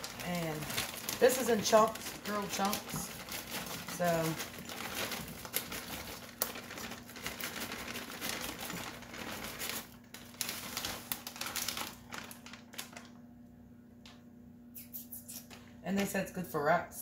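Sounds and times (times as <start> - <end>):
plastic bag crinkling: 0.0 - 13.3.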